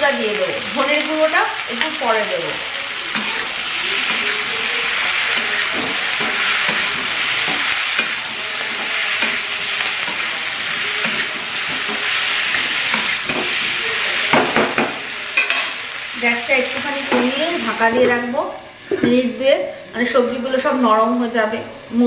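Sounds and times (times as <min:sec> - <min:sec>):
vegetables sizzling in oil: 0:00.0 - 0:22.0
metal spatula scraping wok: 0:01.7 - 0:14.4.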